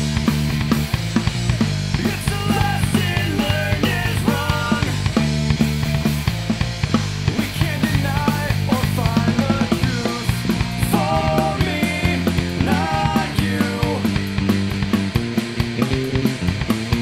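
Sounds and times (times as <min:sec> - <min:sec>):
bass guitar: 0:00.0 - 0:17.0
drum kit beating: 0:00.0 - 0:17.0
electric guitar: 0:00.0 - 0:17.0
man singing lead: 0:01.9 - 0:05.2, 0:07.3 - 0:14.5.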